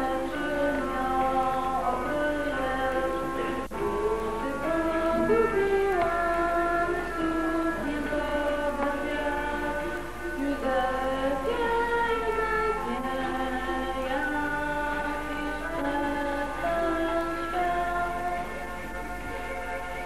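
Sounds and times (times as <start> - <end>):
low mains hum: 0.0 - 20.0.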